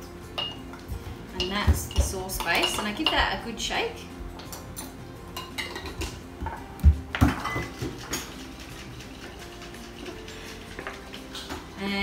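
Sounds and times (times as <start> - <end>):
glass jar shaking and rattling: 7.3 - 11.5.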